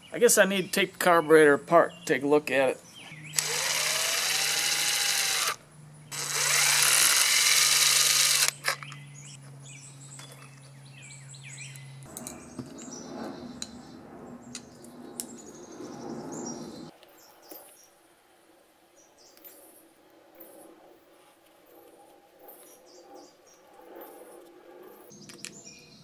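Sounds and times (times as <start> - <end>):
cordless drill motor whine: 3.3 - 9.0.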